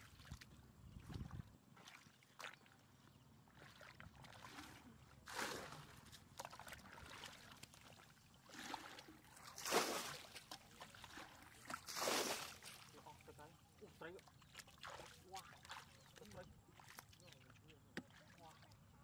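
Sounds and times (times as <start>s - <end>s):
water sloshing: 0.0s - 19.0s
bucket scooping water: 3.5s - 18.8s
water splashing: 3.5s - 18.8s.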